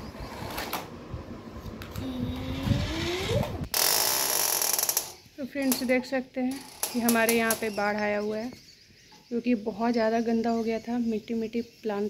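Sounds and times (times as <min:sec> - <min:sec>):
toy car electric motor whirring: 0:02.0 - 0:05.2.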